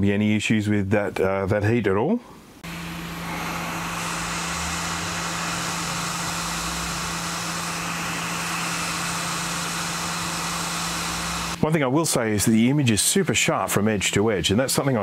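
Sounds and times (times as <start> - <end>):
steady low hum: 2.2 - 15.0
hot air blower hissing: 2.6 - 13.8.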